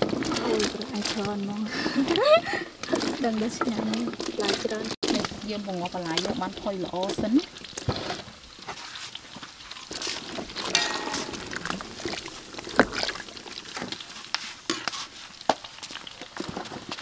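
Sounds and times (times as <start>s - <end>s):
vegetables sloshing in liquid: 0.0s - 17.0s
spatula knocking against pot: 10.7s - 11.8s.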